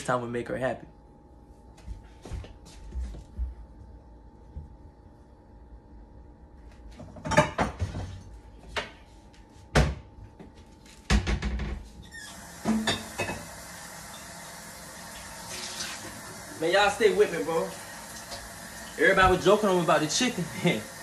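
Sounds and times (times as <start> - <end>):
faucet running: 12.0 - 21.0
cookware clattering: 12.7 - 13.5.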